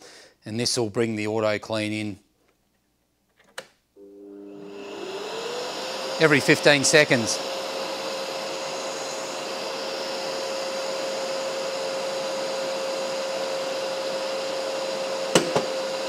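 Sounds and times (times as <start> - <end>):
dust extractor motor running: 4.0 - 16.0
sharp thump: 15.4 - 15.8.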